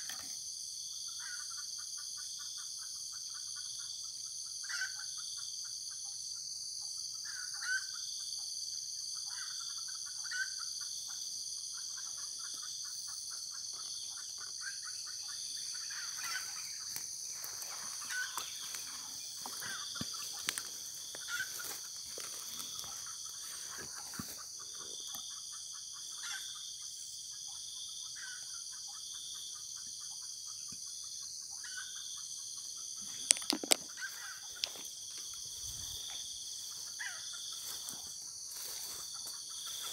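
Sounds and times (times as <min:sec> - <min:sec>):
high-pitched insect drone: 0:00.0 - 0:39.9
junglefowl clucking: 0:11.8 - 0:26.6, 0:33.0 - 0:39.9.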